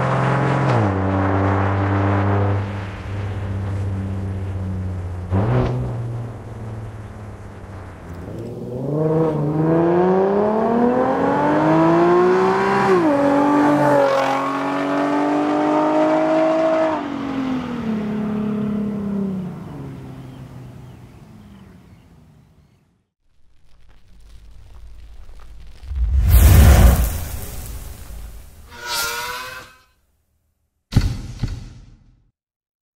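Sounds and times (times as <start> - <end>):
car exhaust accelerating: 0.0 - 16.4.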